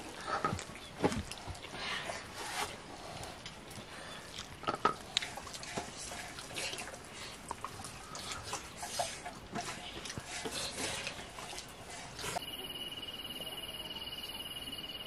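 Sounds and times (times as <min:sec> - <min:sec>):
wet chewing and lip smacking: 0:03.2 - 0:10.2.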